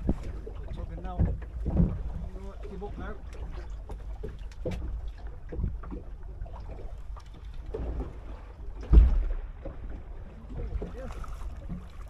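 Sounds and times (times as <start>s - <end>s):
wind and water low rumble: 0.0s - 12.0s
heavy thump: 8.8s - 9.4s.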